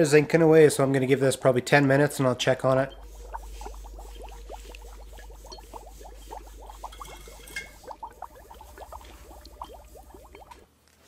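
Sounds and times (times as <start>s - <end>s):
electroplating bath bubbles fizzing: 1.0s - 10.7s
low hum: 2.7s - 10.6s.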